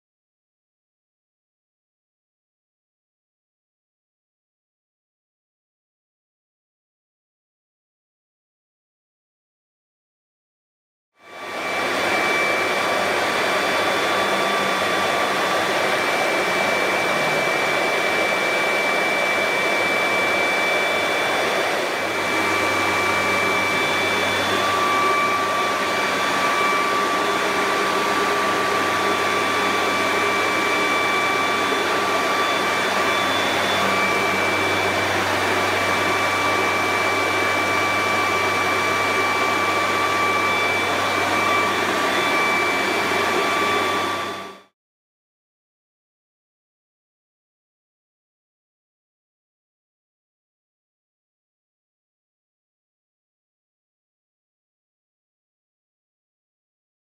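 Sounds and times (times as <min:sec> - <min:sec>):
router spindle whine: 0:11.3 - 0:44.7.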